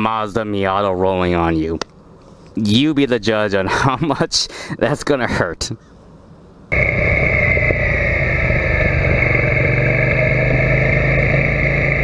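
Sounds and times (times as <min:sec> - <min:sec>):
motorcycle engine running: 0:06.7 - 0:12.0.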